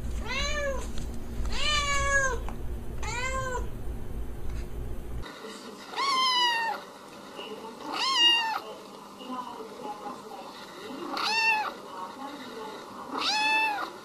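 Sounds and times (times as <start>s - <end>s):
cat meowing: 0.2s - 0.8s, 1.5s - 2.4s, 3.0s - 3.7s, 6.0s - 6.8s, 7.9s - 8.6s, 11.1s - 11.8s, 13.1s - 13.9s.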